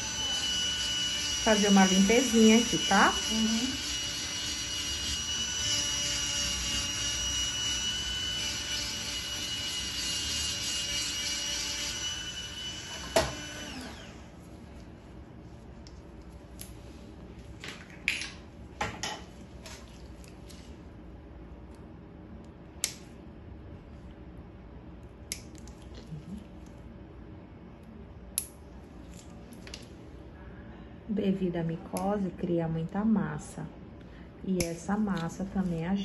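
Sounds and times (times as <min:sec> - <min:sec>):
electric nail drill whining: 0:00.0 - 0:14.3.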